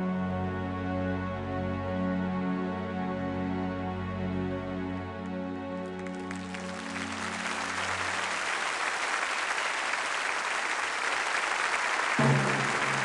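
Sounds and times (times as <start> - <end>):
low steady music: 0.0 - 8.9
audience applauding: 5.8 - 13.0
held chord of song: 12.2 - 13.0.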